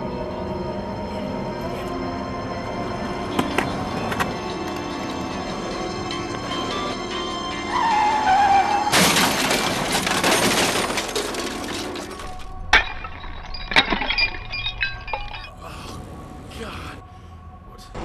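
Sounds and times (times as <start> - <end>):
music: 0.0 - 18.0
glass shattering crash: 8.9 - 15.6
small clinks: 12.8 - 15.6.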